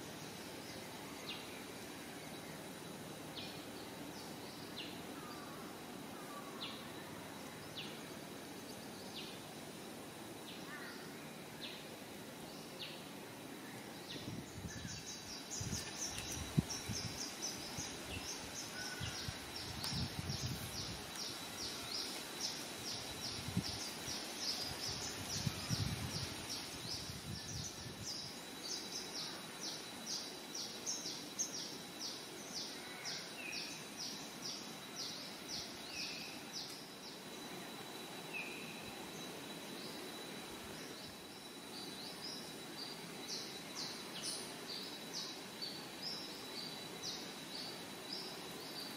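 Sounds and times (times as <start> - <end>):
high insect-like tone: 0.0 - 48.9.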